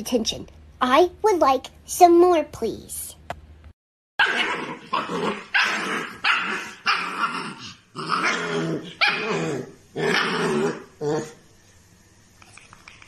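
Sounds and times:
puppy barking and growling: 4.2s - 11.4s.

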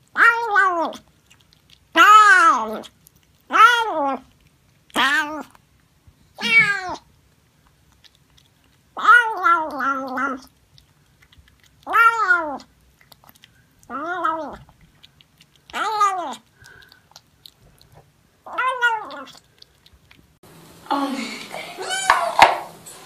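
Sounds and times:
cat meowing: 0.1s - 1.0s, 2.0s - 2.9s, 3.5s - 4.3s, 4.9s - 5.6s, 6.4s - 7.1s, 9.0s - 10.5s, 11.8s - 12.7s, 13.9s - 14.7s, 15.7s - 16.4s, 18.4s - 19.4s.

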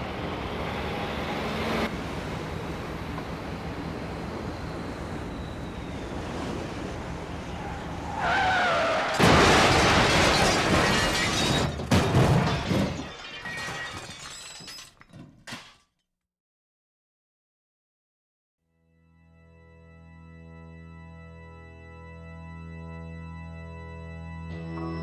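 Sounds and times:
car wind and road noise: 0.0s - 10.8s
tire screech: 4.3s - 9.4s
car crash: 8.1s - 15.8s
debris clattering: 9.0s - 15.9s
glass shattering: 9.1s - 15.9s.

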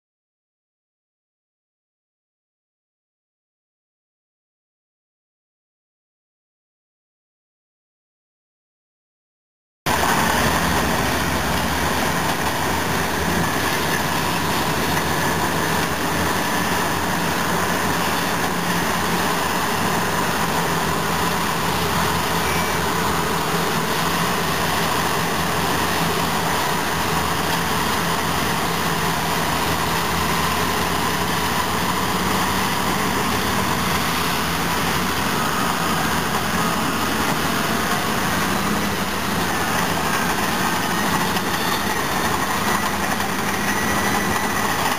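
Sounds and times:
heavy diesel engines droning: 9.9s - 44.9s.

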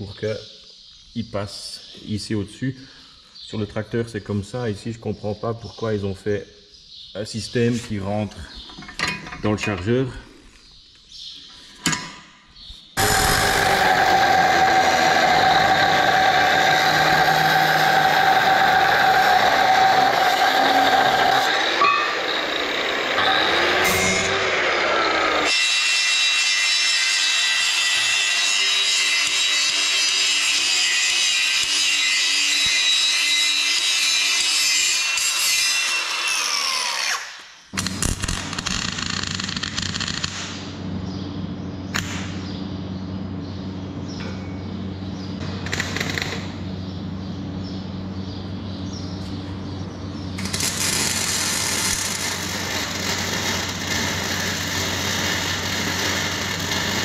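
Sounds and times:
mig welding arc crackling: 13.0s - 25.6s, 37.7s - 40.7s, 45.6s - 46.6s, 50.4s - 57.0s
angle grinder on steel: 13.0s - 38.0s, 50.4s - 57.0s.

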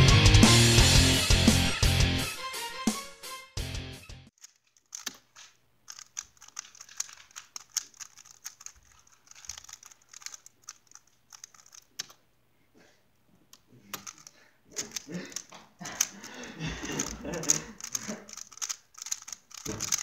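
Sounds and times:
plastic cube clicking: 4.4s - 12.2s, 13.5s - 20.0s.

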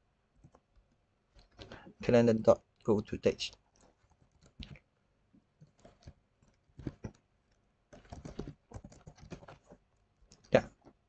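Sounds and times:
computer keyboard typing: 3.7s - 4.8s, 5.6s - 10.6s.

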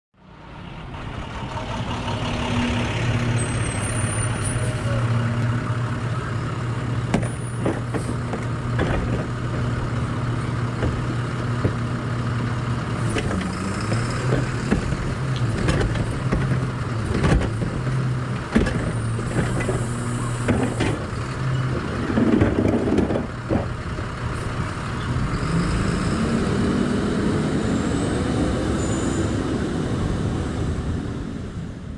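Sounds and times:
truck engine revving: 0.8s - 31.7s
garbage truck engine idling: 4.9s - 25.3s
knocks and bangs of trash cart: 7.1s - 10.0s, 10.6s - 12.0s, 13.1s - 23.8s
hydraulic cart tipper: 7.1s - 24.4s.

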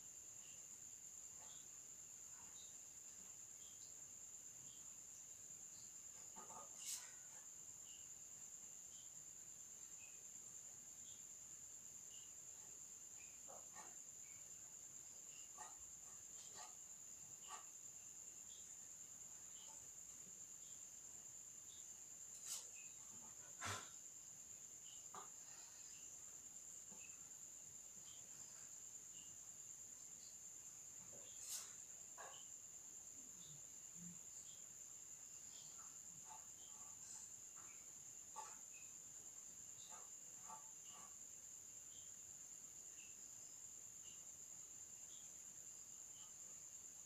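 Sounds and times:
pen scratching on paper: 15.5s - 17.7s.

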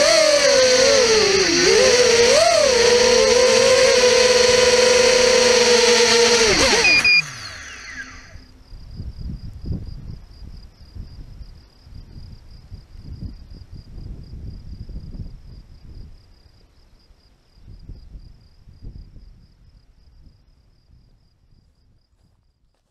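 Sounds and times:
drone motors whining: 0.0s - 8.5s
crickets chirping: 0.0s - 22.9s
short electronic beeps: 6.8s - 7.3s.

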